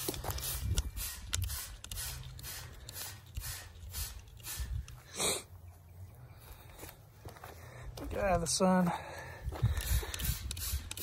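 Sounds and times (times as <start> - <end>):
spray bottle squirts: 0.0 - 4.8, 9.9 - 11.0.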